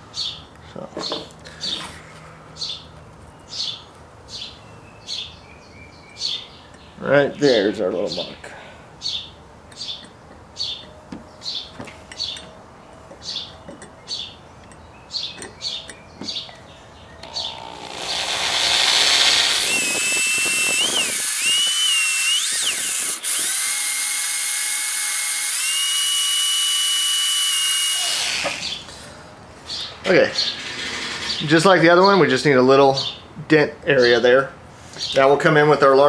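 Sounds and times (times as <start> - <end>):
bird chirping: 2.6 - 8.4, 9.0 - 18.3
electric drill drilling into steel: 17.2 - 28.8.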